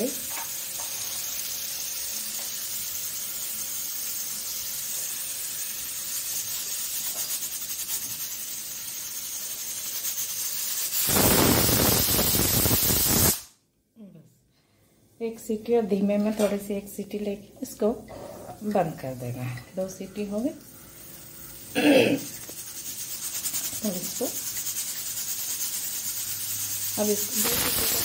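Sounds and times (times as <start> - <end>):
pressure cooker hissing: 0.0 - 13.5, 17.0 - 28.0
pressure cooker whistle steam rush: 0.0 - 13.5, 22.7 - 28.0.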